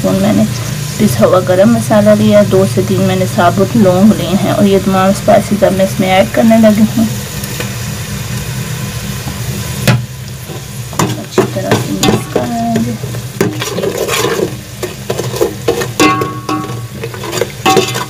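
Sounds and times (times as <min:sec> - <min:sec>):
spices sizzling in a pot: 0:00.0 - 0:18.0
spoon scraping metal pot: 0:10.5 - 0:18.0.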